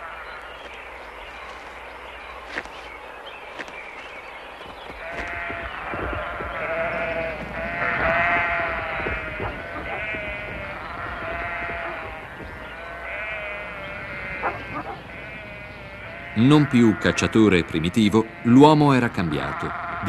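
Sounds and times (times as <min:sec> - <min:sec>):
sheep bleating: 0:05.0 - 0:20.0.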